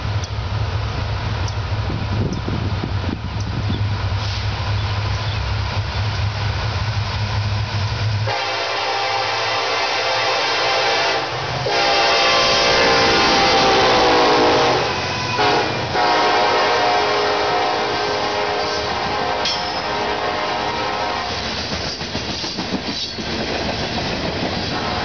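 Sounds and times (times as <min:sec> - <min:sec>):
diesel engine rumble: 0:00.0 - 0:08.9
locomotive air horn blasts: 0:08.2 - 0:21.4.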